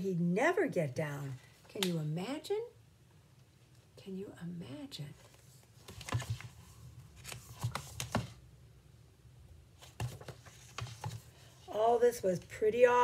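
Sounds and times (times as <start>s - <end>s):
paper pages rustling: 5.2s - 8.4s, 9.8s - 11.5s
soft knocks of book: 9.8s - 11.2s.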